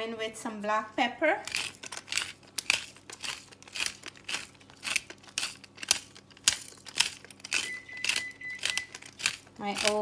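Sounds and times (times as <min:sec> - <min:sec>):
pepper grinder crunching: 0:01.3 - 0:10.0
steady high oven beep: 0:07.5 - 0:09.1.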